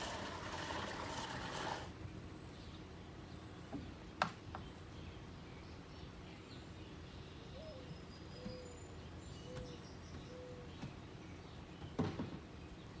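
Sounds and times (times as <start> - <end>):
bird cooing: 7.5 - 8.8, 9.4 - 10.7.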